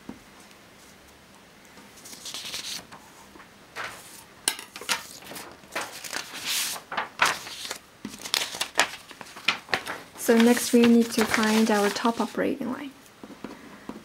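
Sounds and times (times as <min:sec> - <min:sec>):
paper rustling: 0:02.0 - 0:03.2, 0:03.8 - 0:12.5.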